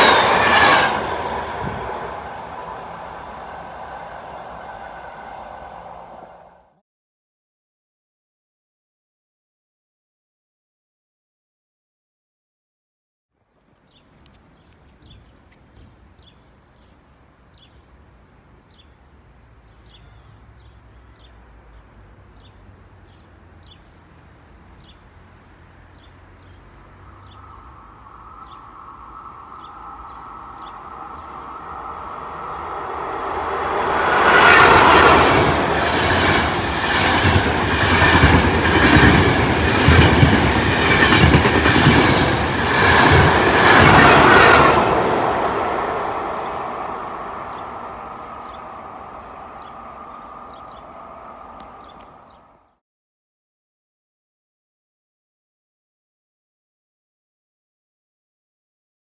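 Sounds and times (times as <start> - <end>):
hum in the rails: 0.0 - 6.6, 27.0 - 52.2
train rushing past: 0.0 - 6.8, 25.8 - 52.3.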